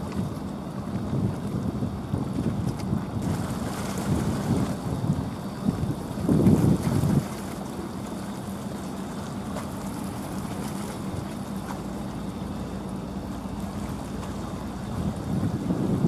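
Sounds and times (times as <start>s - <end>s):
wind buffeting microphone: 0.0s - 8.0s, 13.7s - 16.0s
distant boat engine drone: 0.0s - 16.0s
wind and water hiss: 0.0s - 16.0s.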